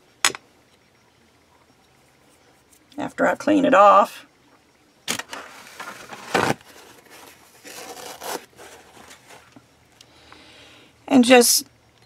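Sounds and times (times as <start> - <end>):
soft rubbing: 5.4 - 9.6
blade scraping: 7.1 - 9.5.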